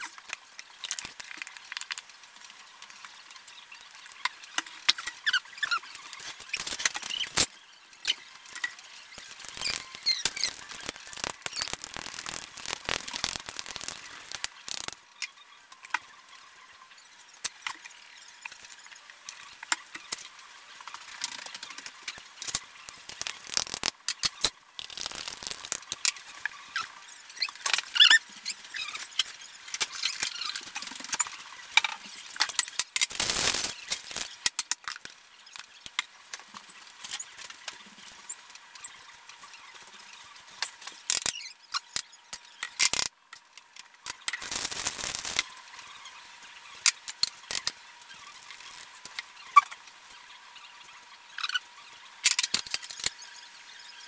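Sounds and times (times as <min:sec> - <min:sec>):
squeeze bottles squirting: 0:09.2 - 0:15.0, 0:22.5 - 0:26.1, 0:29.8 - 0:34.4, 0:44.1 - 0:45.4
short squeaky squeals: 0:26.7 - 0:29.2.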